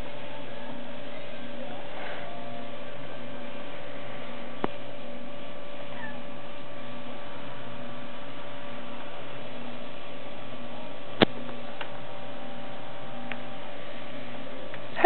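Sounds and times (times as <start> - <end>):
electrical hum: 0.0 - 15.0
kitten mewing: 5.9 - 6.3.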